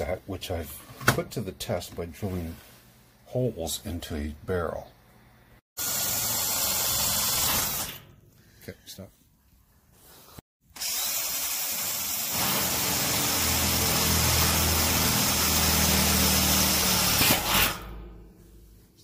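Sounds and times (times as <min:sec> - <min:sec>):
cordless drill drilling into steel: 0:05.8 - 0:08.0, 0:10.7 - 0:17.8.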